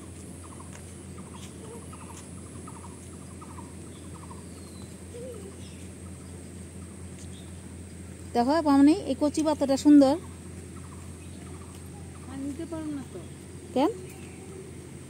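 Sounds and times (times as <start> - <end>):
small animal trilling ticks: 0.1 - 8.4, 9.3 - 14.7.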